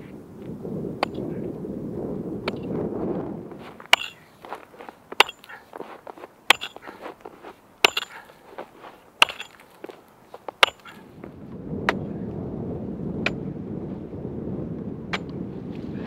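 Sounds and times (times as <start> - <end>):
axe chopping ice: 3.8 - 11.0.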